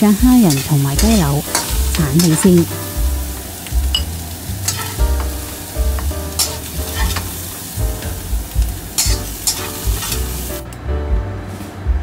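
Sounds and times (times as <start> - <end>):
food sizzling in oil: 0.0 - 10.6
metal spatula scraping wok: 0.5 - 2.7, 3.9 - 5.0, 6.3 - 7.7, 8.9 - 10.3.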